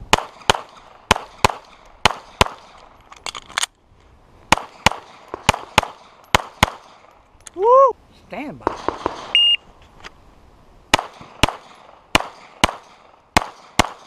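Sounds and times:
pistol shots: 0:00.1 - 0:02.8, 0:04.5 - 0:07.1, 0:08.6 - 0:09.4, 0:10.9 - 0:14.0.

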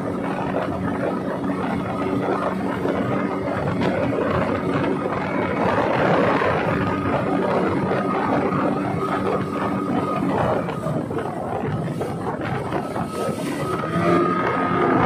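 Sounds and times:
speedboat engine running: 0:00.0 - 0:15.0
water rushing: 0:00.0 - 0:15.0
wind: 0:00.0 - 0:15.0.

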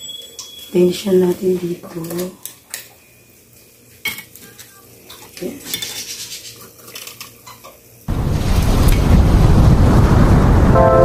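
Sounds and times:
loud rushing noise: 0:08.1 - 0:11.0.

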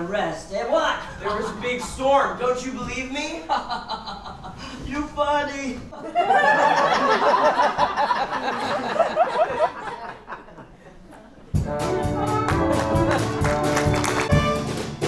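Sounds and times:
laughter: 0:01.1 - 0:02.1, 0:03.4 - 0:04.8, 0:05.9 - 0:11.5
pit orchestra with brass chords: 0:11.6 - 0:15.0.

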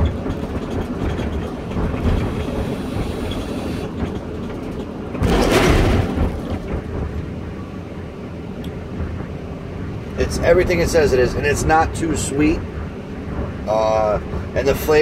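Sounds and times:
low rumble: 0:00.0 - 0:15.0.

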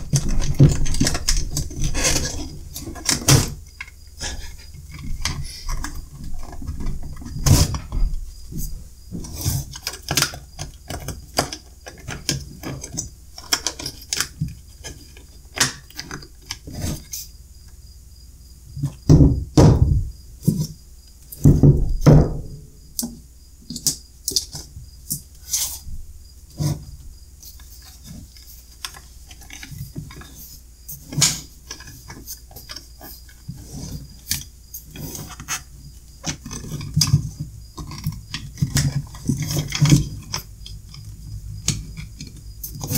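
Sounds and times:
loud knocks: 0:19.0 - 0:20.2, 0:21.4 - 0:22.6.

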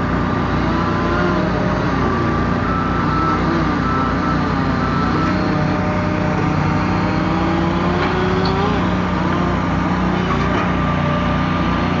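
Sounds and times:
machinery engines running: 0:00.0 - 0:12.0.

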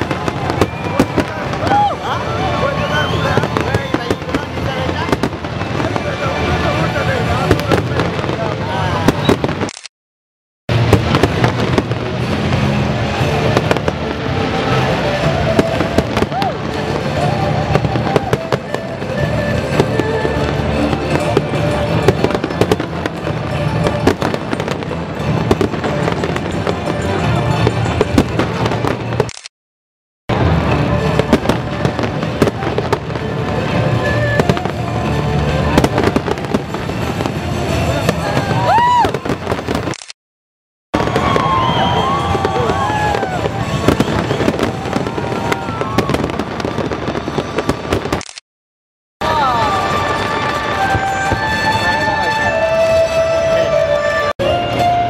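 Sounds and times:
fireworks booming and crackling: 0:00.0 - 0:09.7, 0:10.7 - 0:29.3, 0:30.3 - 0:40.0, 0:41.0 - 0:48.2, 0:49.2 - 0:55.0
music playing: 0:10.7 - 0:29.2, 0:30.3 - 0:39.8, 0:49.2 - 0:55.0.

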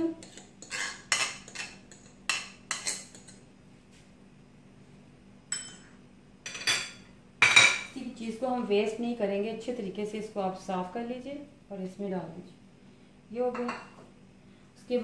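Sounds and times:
spoon scraping bowl: 0:00.1 - 0:03.4.

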